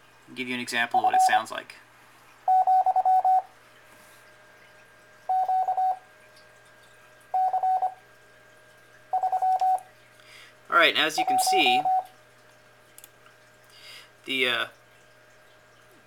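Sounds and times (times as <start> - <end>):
morse code beeps: 1.0 - 1.4, 2.5 - 3.5, 5.3 - 6.0, 7.4 - 8.0, 9.1 - 9.8, 11.2 - 12.1.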